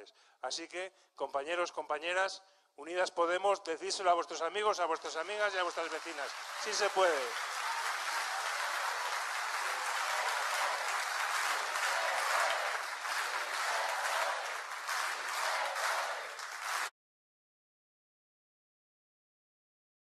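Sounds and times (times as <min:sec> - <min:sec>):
audience applauding: 0:05.1 - 0:16.9.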